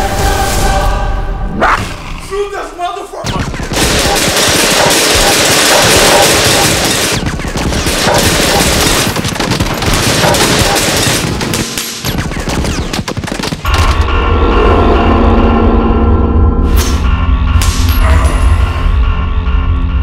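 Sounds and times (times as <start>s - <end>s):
machine gun fire: 3.3s - 14.0s
music with deep bass drone: 13.6s - 20.0s.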